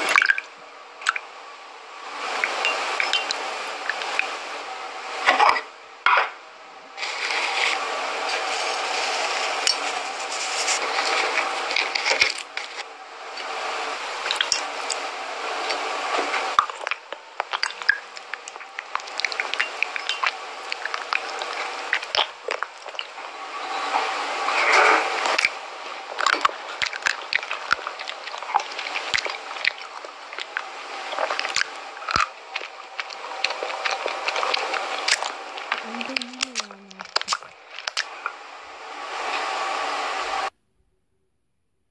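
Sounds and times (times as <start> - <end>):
sand sprinkling hiss: 7.0 - 12.0
wet squishing of food: 16.5 - 23.2, 25.2 - 38.2.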